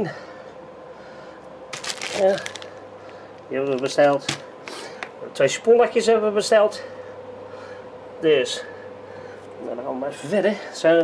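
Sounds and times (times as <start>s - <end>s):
plastic bag rustling: 1.7s - 2.8s.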